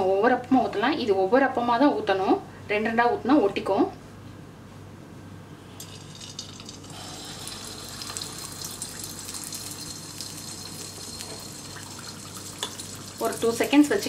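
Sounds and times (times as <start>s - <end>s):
batter sizzling in hot oil: 5.8s - 14.0s.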